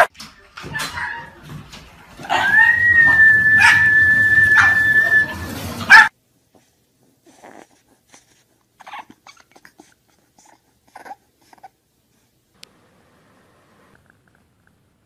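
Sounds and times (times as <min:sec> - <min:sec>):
dog whining: 0:02.2 - 0:06.1, 0:07.3 - 0:07.8, 0:08.8 - 0:11.8
dog yelping: 0:02.2 - 0:06.1, 0:08.8 - 0:11.7.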